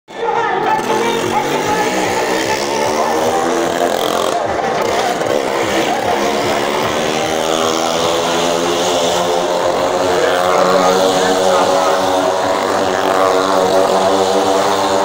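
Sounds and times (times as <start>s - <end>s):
motorcycle engine revving: 0.1s - 15.0s.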